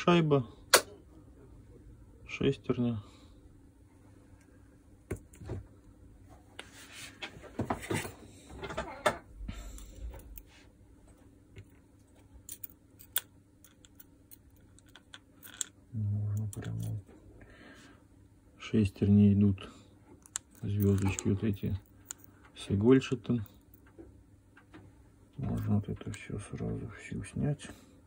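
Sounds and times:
clicks of small parts handled: 12.5s - 17.0s.

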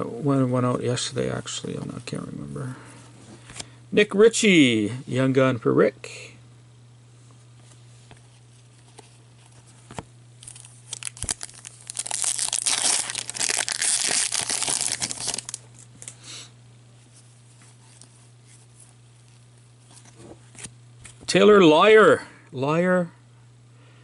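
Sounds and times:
wrapper tearing and crinkling: 10.4s - 16.1s.

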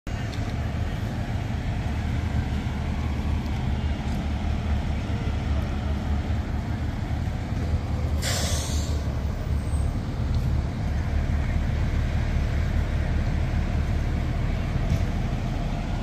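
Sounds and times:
vehicle engines idling: 0.1s - 16.0s
air-brake hiss: 8.2s - 9.1s.

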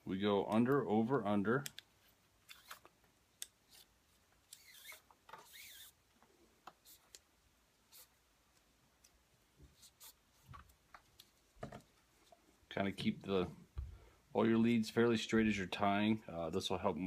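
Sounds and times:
cord rustling and scraping: 1.9s - 3.0s, 3.6s - 7.2s, 7.8s - 13.2s
scratchy rasp: 4.5s - 6.0s.

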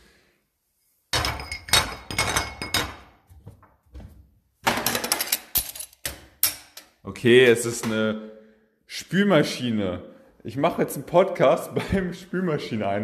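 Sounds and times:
dishes clattering in dishwasher racks: 1.2s - 3.1s, 4.6s - 5.8s.

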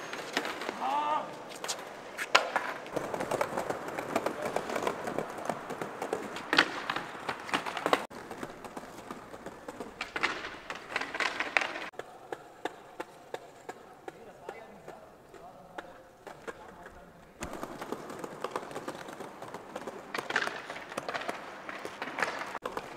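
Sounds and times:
skateboard wheels rolling on paving: 0.0s - 22.9s
skateboard clattering down: 2.3s - 12.0s, 17.4s - 22.9s.

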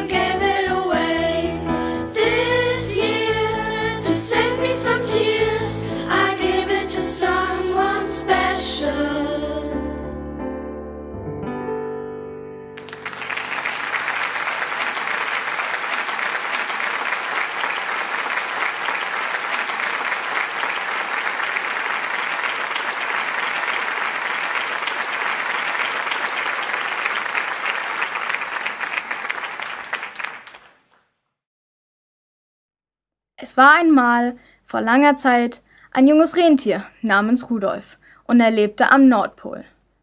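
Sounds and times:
song ending: 0.0s - 14.1s
audience applause: 12.8s - 30.9s.

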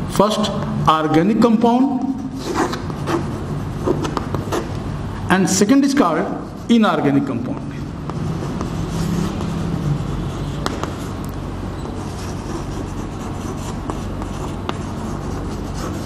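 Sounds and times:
chalk tapping on board: 2.0s - 4.8s, 8.0s - 11.2s, 12.0s - 16.0s
chalk writing on blackboard: 2.0s - 4.8s, 5.9s - 6.8s, 7.8s - 16.0s.

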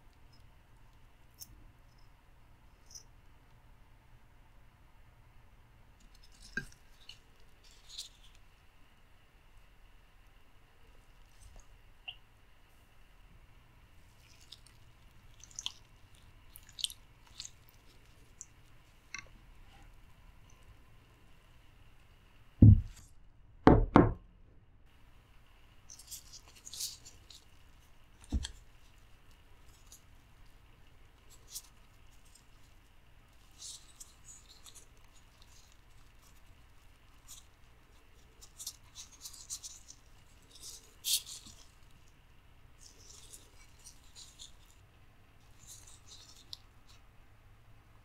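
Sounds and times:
gloved hands handling octopus: 10.1s - 23.3s, 25.1s - 48.0s.

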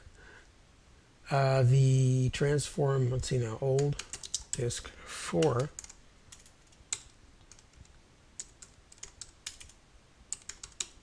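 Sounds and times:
computer keyboard key clicks: 3.8s - 4.6s, 5.4s - 7.8s, 8.4s - 11.0s.

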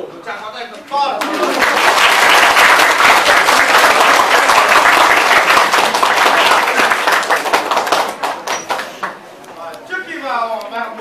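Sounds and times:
students clapping: 1.2s - 9.2s.

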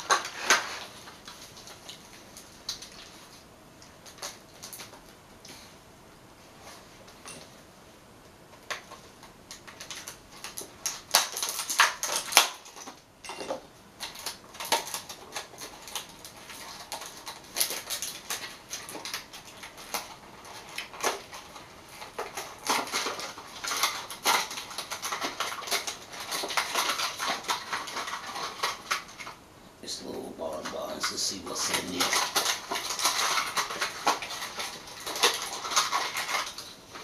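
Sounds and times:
plastic wrapping crinkling: 0.0s - 5.7s, 8.6s - 13.0s, 14.0s - 29.4s, 30.1s - 37.0s.

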